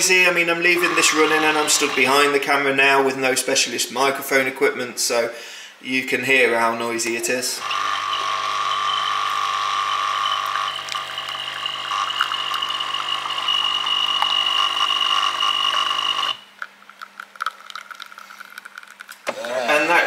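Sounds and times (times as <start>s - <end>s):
coffee machine humming: 0.0s - 2.4s, 7.6s - 16.4s.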